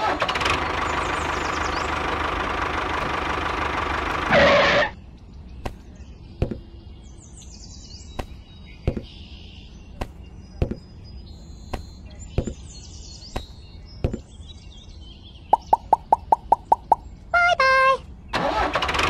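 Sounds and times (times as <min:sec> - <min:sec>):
tractor engine running: 0:00.0 - 0:05.0, 0:15.5 - 0:19.0
faint bird chirps: 0:04.9 - 0:18.4.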